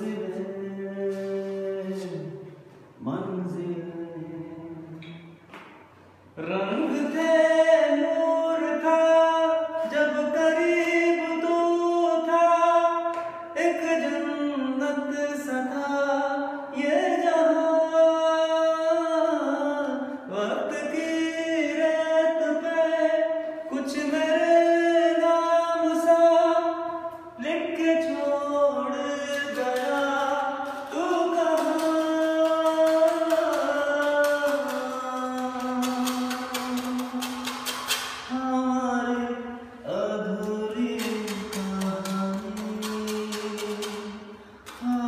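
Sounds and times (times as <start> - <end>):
person singing long notes: 27.4 - 45.0.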